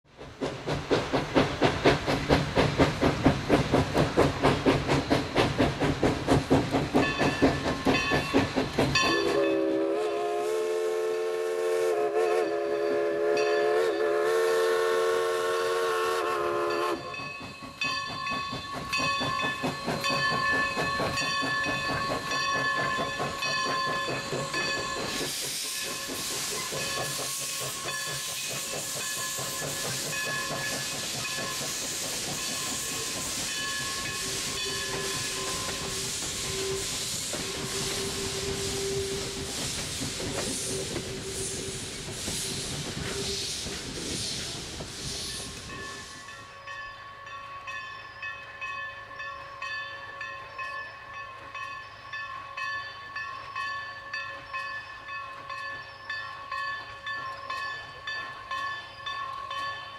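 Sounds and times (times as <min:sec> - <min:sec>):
steam hissing: 0:00.1 - 0:47.1
locomotive bell ringing: 0:07.0 - 0:09.9, 0:12.3 - 0:14.4, 0:16.6 - 0:38.4, 0:45.6 - 0:59.9
steam whistle blast: 0:09.1 - 0:17.1, 0:34.1 - 0:39.6, 0:40.4 - 0:43.6.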